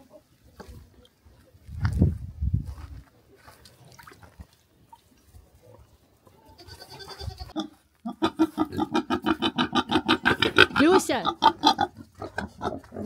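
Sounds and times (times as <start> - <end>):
pigs grunting: 7.6 - 13.0.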